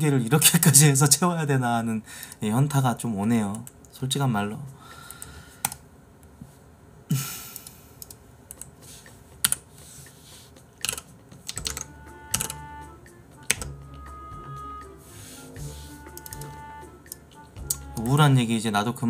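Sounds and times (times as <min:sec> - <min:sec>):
soft background music: 0:08.4 - 0:19.0
keyboard keys clicking: 0:09.4 - 0:09.6, 0:10.8 - 0:12.6, 0:13.4 - 0:13.8, 0:16.0 - 0:18.2.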